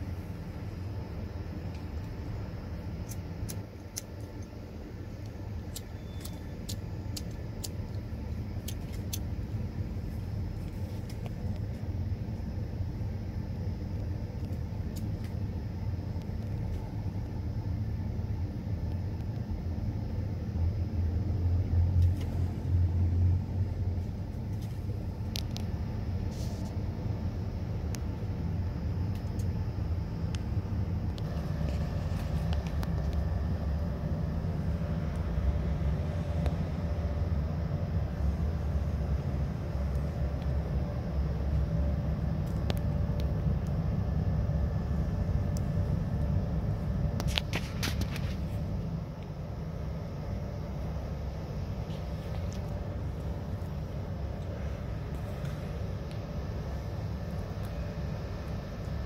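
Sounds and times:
low outdoor rumble: 0:00.0 - 0:59.0.

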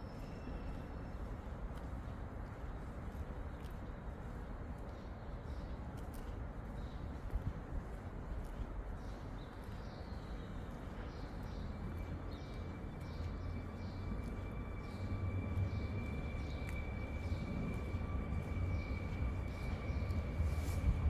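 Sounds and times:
low railway station rumble: 0:00.0 - 0:21.0
steady high whine: 0:13.4 - 0:21.0.

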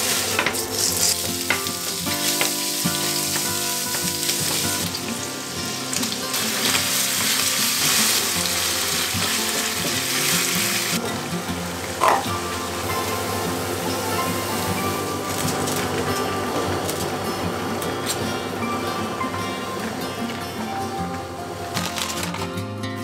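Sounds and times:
meat sizzling in a pan: 0:00.0 - 0:16.2
spatula knocking on pan: 0:12.0 - 0:12.5.

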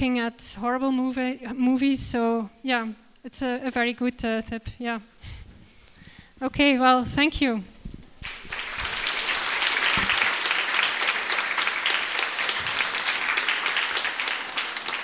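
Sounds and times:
audience applauding: 0:08.2 - 0:15.0.

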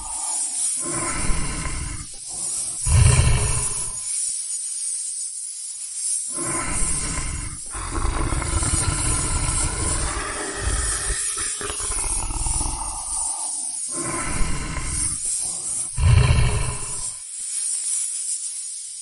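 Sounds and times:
lion roaring: 0:00.0 - 0:04.1, 0:06.3 - 0:17.2.

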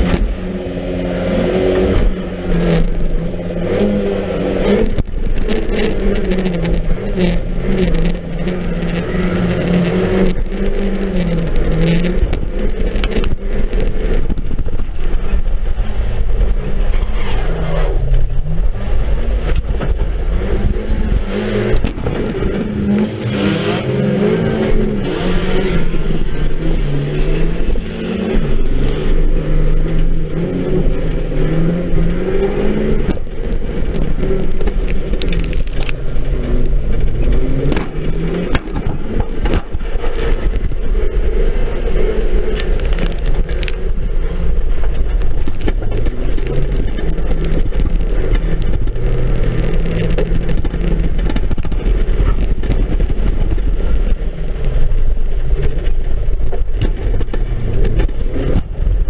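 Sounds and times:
car engine revving: 0:00.0 - 0:59.0
car body rattling and knocking: 0:32.4 - 0:59.0.

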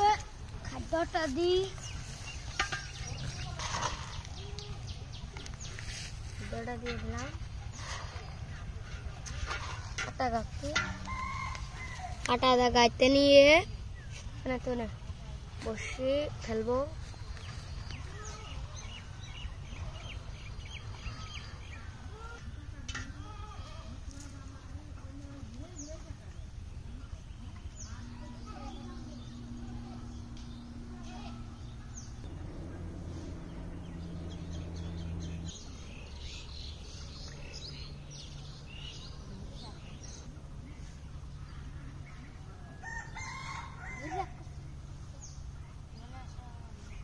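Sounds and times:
birds chirping: 0:00.0 - 0:24.8, 0:25.4 - 0:47.0
low steady hum: 0:00.0 - 0:47.0
steady low rumble: 0:26.5 - 0:42.8.

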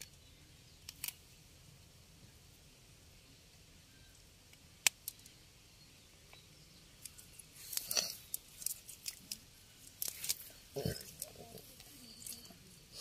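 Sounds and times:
clicks and rustles of net and fish: 0:07.0 - 0:12.8.

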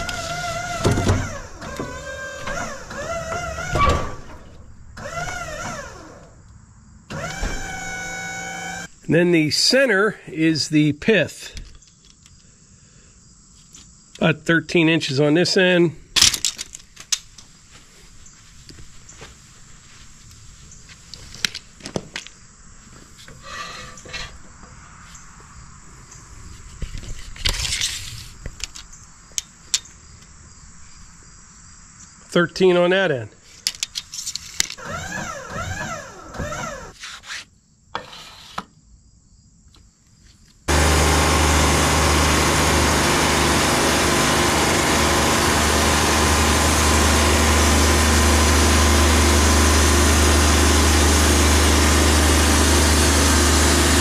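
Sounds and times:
hydraulic pump whining: 0:00.0 - 0:06.4, 0:07.1 - 0:09.0, 0:34.6 - 0:37.0, 0:40.7 - 0:54.0.

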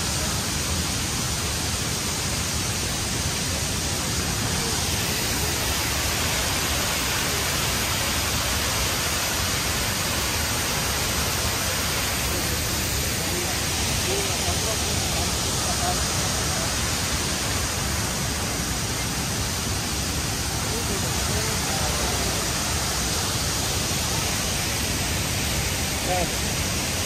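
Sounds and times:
waterfall and river rushing: 0:00.0 - 0:27.0.

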